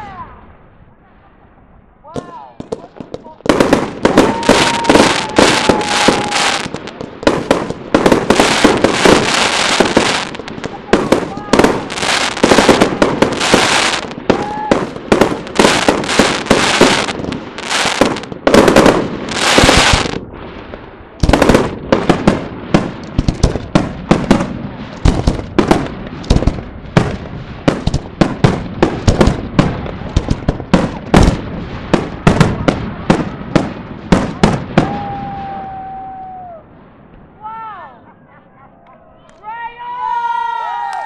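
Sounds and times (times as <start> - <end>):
rapid sharp firework bangs: 2.2 - 35.6
fireworks shells bursting: 15.0 - 20.2.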